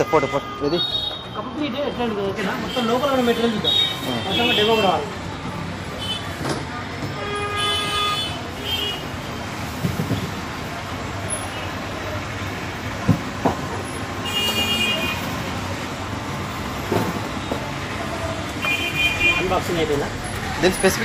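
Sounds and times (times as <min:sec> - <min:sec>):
background traffic: 0:00.0 - 0:21.0
car horn tooting: 0:02.7 - 0:05.1, 0:07.2 - 0:09.1, 0:14.2 - 0:15.4, 0:18.6 - 0:19.7.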